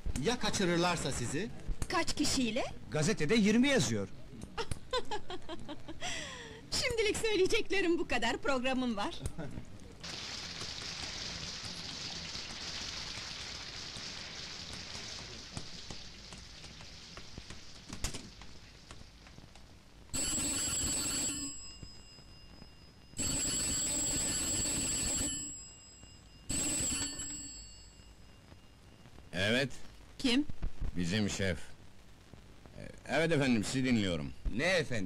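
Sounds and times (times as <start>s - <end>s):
telephone bell ringing: 20.1s - 28.8s.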